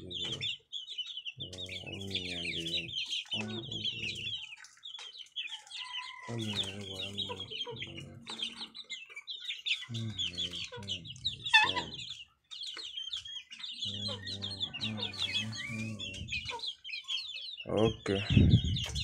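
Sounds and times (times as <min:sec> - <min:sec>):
chicks peeping: 0:00.0 - 0:19.0
hens clucking: 0:00.0 - 0:19.0
chicken squawk: 0:05.5 - 0:12.2, 0:13.9 - 0:17.3.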